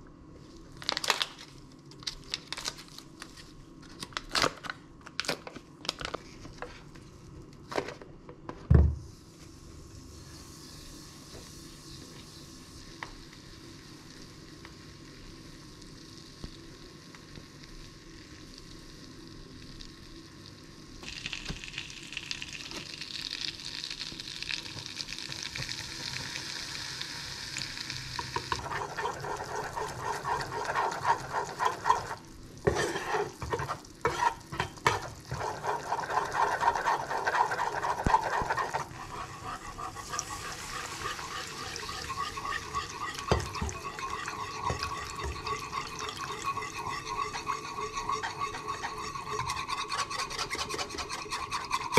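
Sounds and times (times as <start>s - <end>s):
butter sizzling in a saucepan: 9.9s - 51.9s
utensil scraping a pan: 28.5s - 51.9s
milk pouring: 35.1s - 51.9s.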